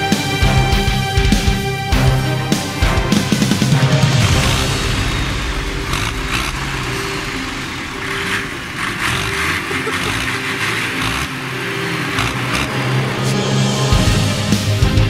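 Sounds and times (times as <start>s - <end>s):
tractor diesel engines running: 0.0s - 15.0s.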